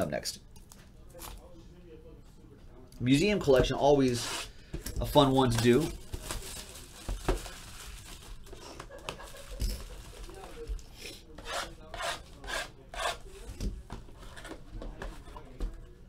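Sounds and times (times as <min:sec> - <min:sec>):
foil packs rustling: 0:05.1 - 0:10.6
shrink wrap crinkling: 0:05.3 - 0:10.6.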